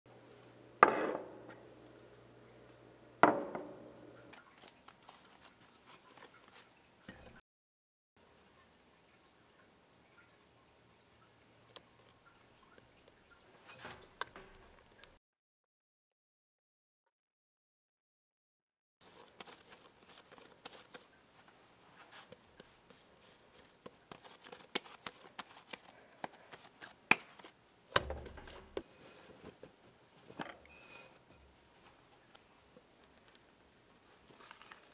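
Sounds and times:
ceramic dishes clunking on table: 0.8 - 1.4, 3.2 - 3.8
hands kneading dough: 19.0 - 29.8.

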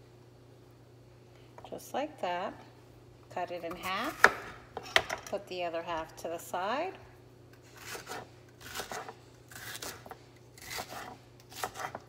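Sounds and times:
knife slicing on wooden board: 7.8 - 12.0.

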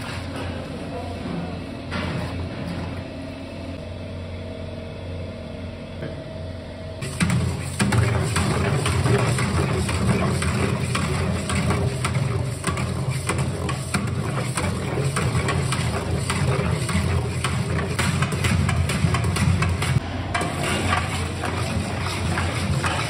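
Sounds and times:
low machine hum: 0.0 - 23.0
metal rod scraping steel pot: 7.0 - 23.0.

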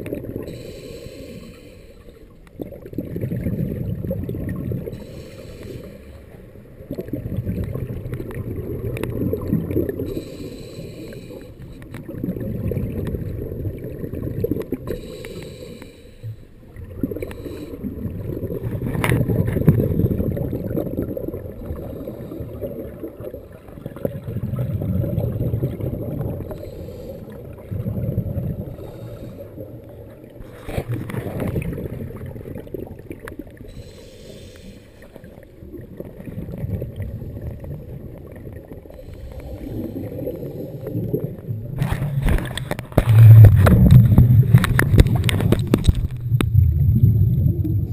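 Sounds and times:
regulator bubbles underwater: 0.0 - 47.9
faint hissing: 0.4 - 2.4, 4.8 - 6.8, 9.9 - 11.9, 14.8 - 18.1, 26.4 - 27.8, 33.5 - 35.4.

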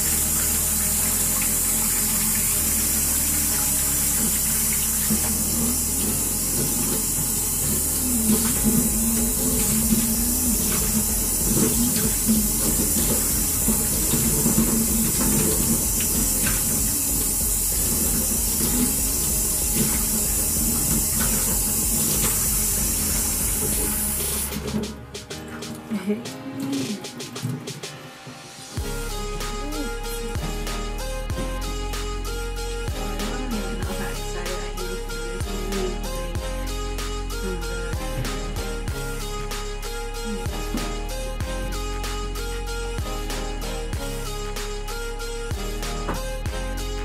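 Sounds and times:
tap water running into sink: 0.0 - 25.9.

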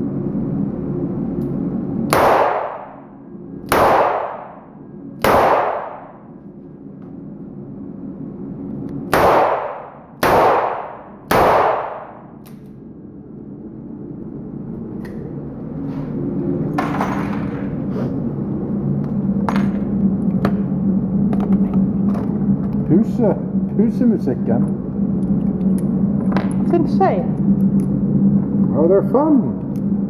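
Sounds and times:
revolver shots indoors: 0.0 - 21.6
low hum: 0.0 - 30.0.

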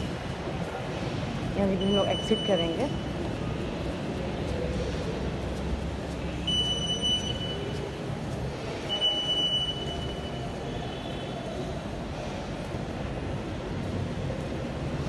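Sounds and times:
station hall noise: 0.0 - 15.0
high electronic beeps: 6.5 - 7.7.

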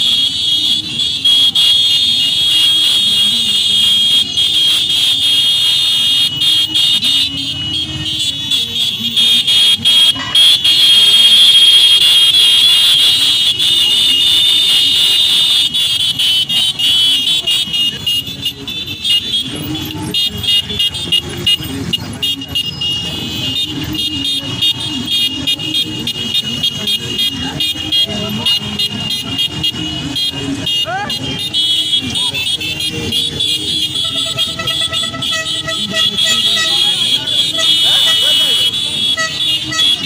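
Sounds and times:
motorcycle engines running: 0.0 - 40.0.

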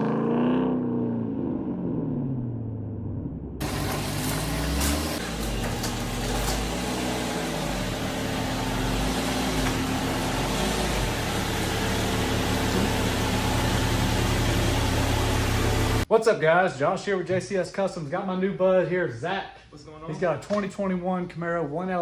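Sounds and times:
car engine running: 0.9 - 16.1.

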